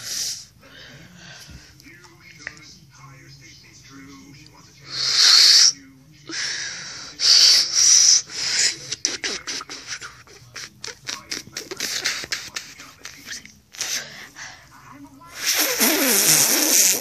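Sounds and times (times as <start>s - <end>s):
airy hisses of blowing: 4.9s - 5.7s, 15.4s - 17.0s.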